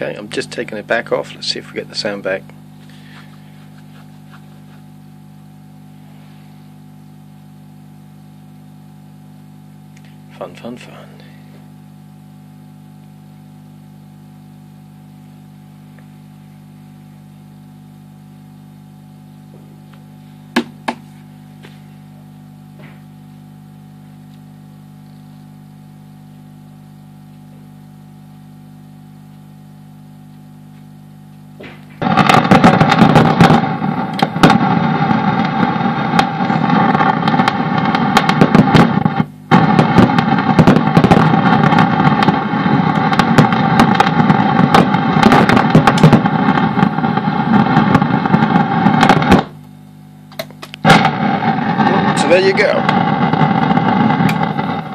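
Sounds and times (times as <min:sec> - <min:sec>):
guitar amp humming: 0:00.0 - 0:54.9
loud crackling and popping noise: 0:00.0 - 0:54.9.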